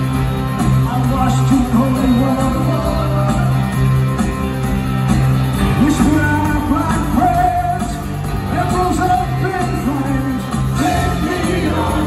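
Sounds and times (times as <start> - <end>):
rock band playing live: 0.0 - 12.0
man singing: 0.9 - 3.6, 5.7 - 12.0.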